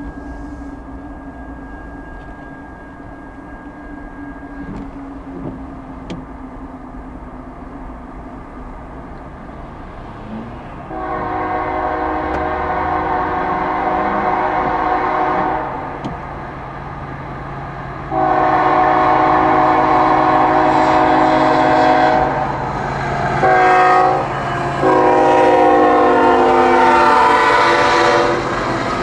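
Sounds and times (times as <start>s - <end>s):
locomotive air horn chord: 0.0s - 6.1s, 10.2s - 16.2s, 18.0s - 29.0s
steady low rumble: 0.0s - 10.9s.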